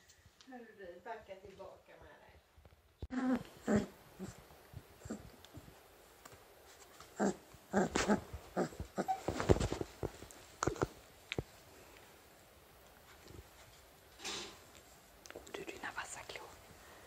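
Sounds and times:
puppies grunting and squeaking: 3.1 - 5.4, 7.1 - 9.6.

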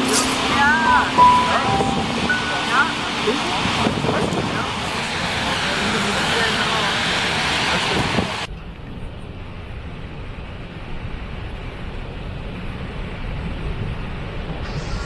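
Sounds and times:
hissing rush of falling water: 0.0 - 8.5, 14.6 - 15.0
waterfall rumble: 0.0 - 8.5.

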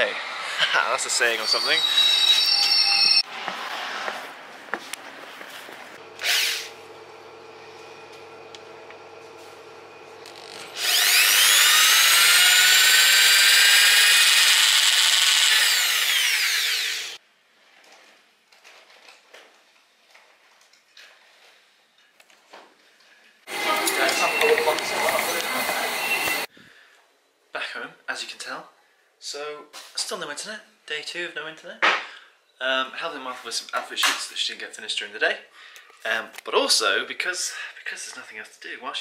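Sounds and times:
electric drill whining: 1.4 - 3.2, 6.0 - 7.0, 10.1 - 17.2, 23.5 - 26.5.

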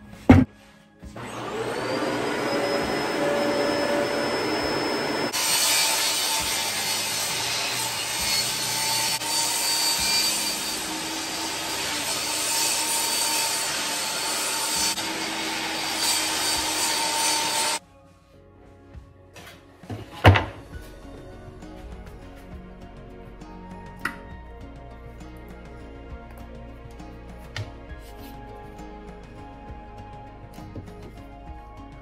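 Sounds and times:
vacuum whining: 1.0 - 5.6, 14.7 - 17.8
table saw cutting plywood: 1.2 - 17.8.

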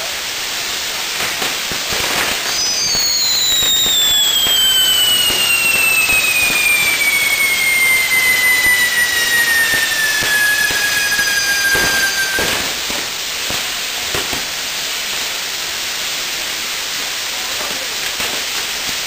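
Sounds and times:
firework wheel hissing and crackling: 0.0 - 19.0
firework whistle sliding down: 1.4 - 13.2.

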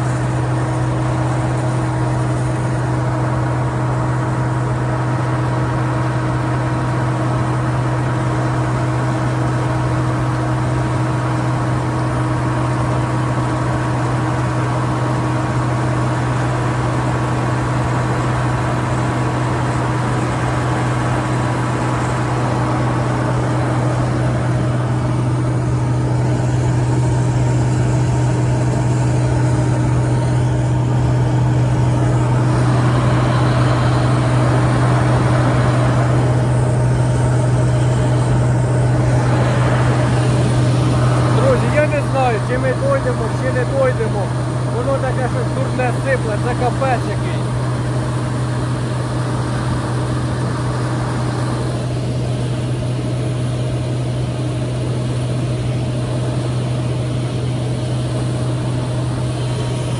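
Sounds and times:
combine harvester engine drone: 0.0 - 59.9.

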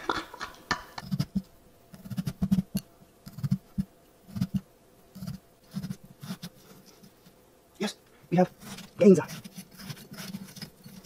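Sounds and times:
knife sawing through pumpkin: 8.6 - 11.0.

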